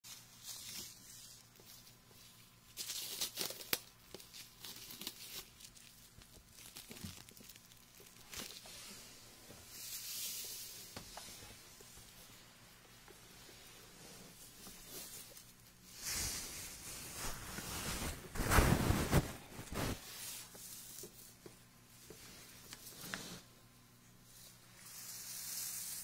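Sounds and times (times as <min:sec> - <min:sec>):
smooth rubbing hiss: 0:08.5 - 0:21.4, 0:22.1 - 0:23.6, 0:24.2 - 0:26.0.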